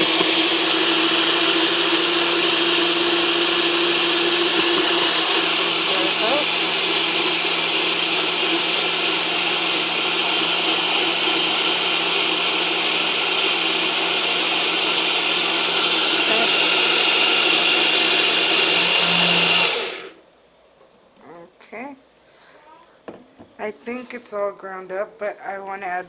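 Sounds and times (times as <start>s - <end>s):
blender motor spinning down: 0.0s - 20.2s
blender motor whirring: 0.0s - 20.2s.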